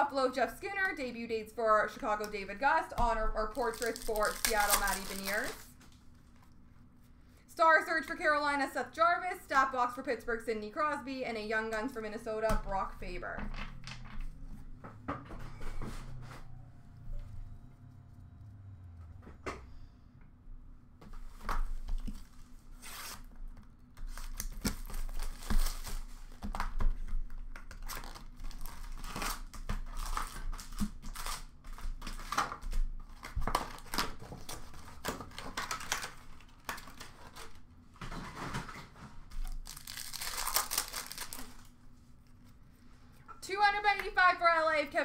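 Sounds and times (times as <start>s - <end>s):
card pack wrappers tearing: 3.5s - 5.8s, 24.0s - 26.7s, 27.6s - 37.6s, 39.4s - 41.8s
cards being handled: 3.6s - 6.5s.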